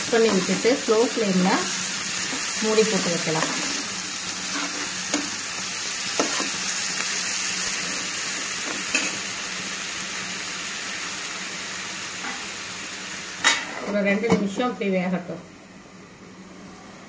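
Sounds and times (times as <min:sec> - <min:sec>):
food sizzling in a frying pan: 0:00.0 - 0:15.2
spatula scraping and tapping pan: 0:06.2 - 0:06.6.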